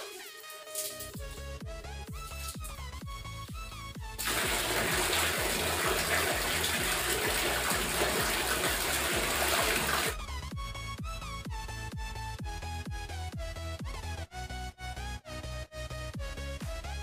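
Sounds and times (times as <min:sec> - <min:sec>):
electronic music with beat: 0:00.0 - 0:17.0
water poured over hair: 0:04.2 - 0:10.2.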